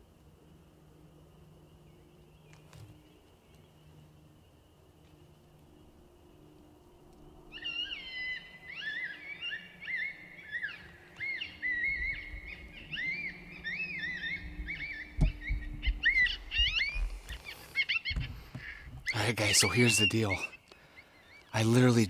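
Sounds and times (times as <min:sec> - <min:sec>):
coyote howls and yips: 0:07.5 - 0:17.0
low thumps: 0:14.4 - 0:17.2.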